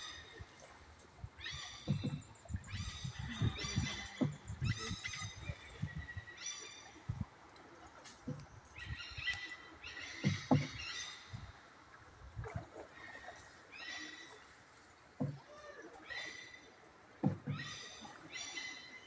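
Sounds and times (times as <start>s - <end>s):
paddling water sounds: 0.0s - 19.0s
knocks on wooden boat: 1.8s - 2.6s, 3.4s - 5.0s, 10.2s - 10.9s, 15.2s - 15.4s, 17.2s - 17.6s.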